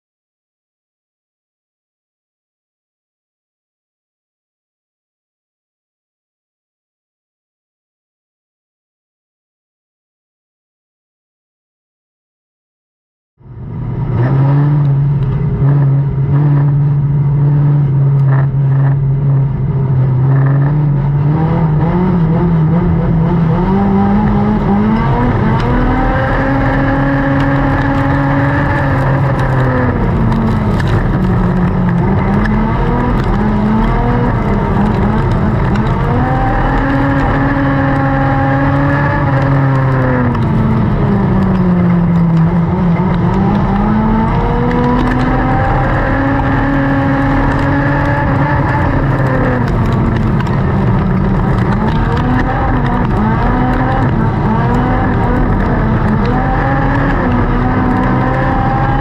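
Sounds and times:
race car engine revving: 0:13.6 - 0:59.0.

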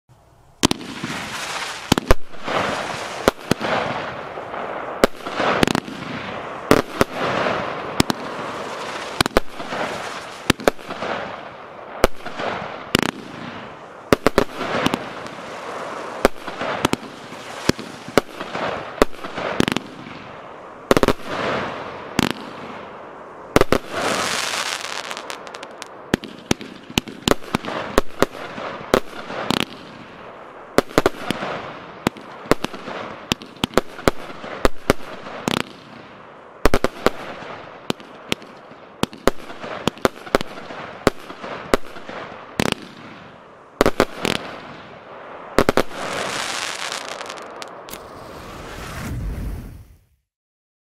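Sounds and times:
fireworks bangs: 0:00.6 - 0:50.1
fireworks hiss: 0:00.8 - 0:20.0, 0:23.5 - 0:26.0, 0:45.6 - 0:50.2.

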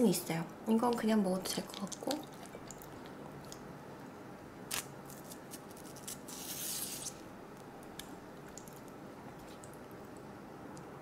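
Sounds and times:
wet cabbage ripping: 0:04.7 - 0:07.2.

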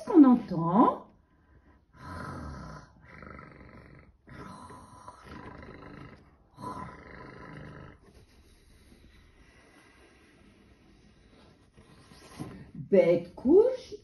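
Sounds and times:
low rasping snores: 0:01.9 - 0:11.1.

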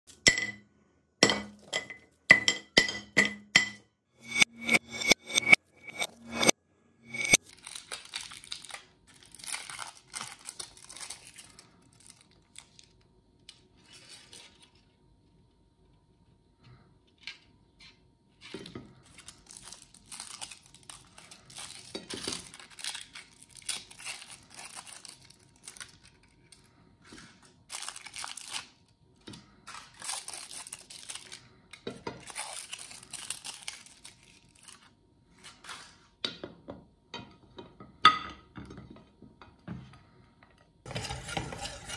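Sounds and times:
clink against ceramic plate: 0:01.2 - 0:06.5
foil wrappers crinkling: 0:07.4 - 0:13.1, 0:19.0 - 0:36.1.

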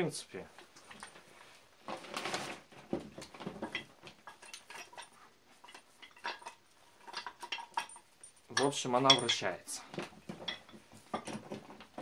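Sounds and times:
metal vise knocking and scraping: 0:03.0 - 0:12.0.

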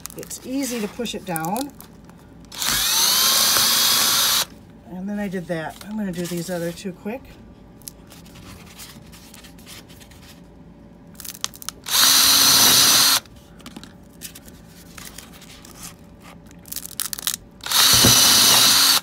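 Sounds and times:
power drill boring through cardboard: 0:02.5 - 0:04.5, 0:11.9 - 0:13.2, 0:17.6 - 0:19.0.

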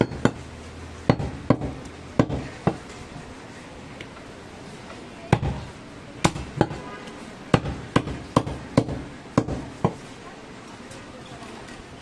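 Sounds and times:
cleaver chopping on wood block: 0:00.0 - 0:00.4, 0:01.1 - 0:02.8, 0:05.4 - 0:06.8, 0:07.5 - 0:10.0.

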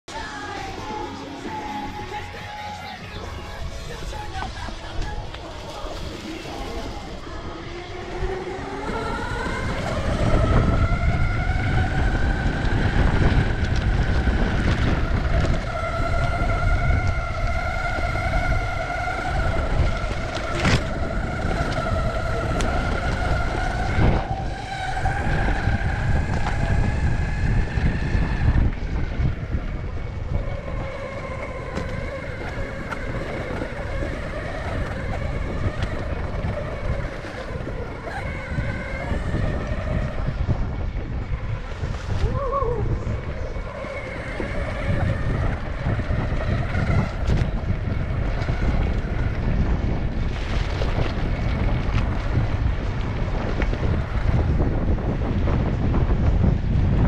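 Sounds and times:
wheels rumbling on dirt: 0:00.0 - 0:57.0
electric skateboard motors whining: 0:00.1 - 0:57.0.

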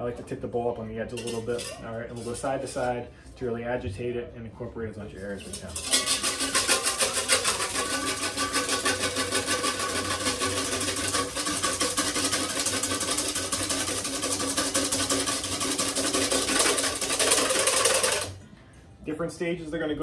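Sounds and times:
whisk beating in metal bowl: 0:05.4 - 0:18.4.

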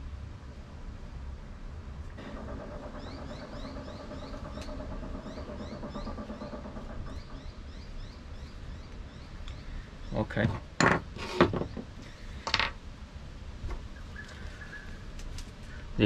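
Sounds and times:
engine idling: 0:02.2 - 0:08.6
short rising bird chirps: 0:02.2 - 0:10.2.

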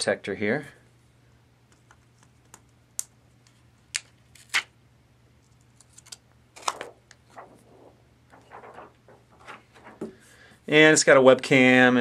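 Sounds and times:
plastic film peeling snaps: 0:01.8 - 0:04.7, 0:05.8 - 0:10.0.

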